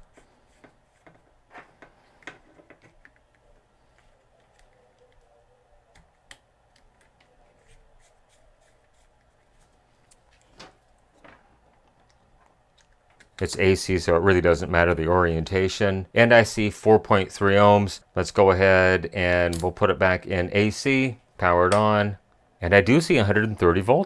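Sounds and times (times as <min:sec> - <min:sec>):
small clicks and rubs: 0:00.1 - 0:05.3.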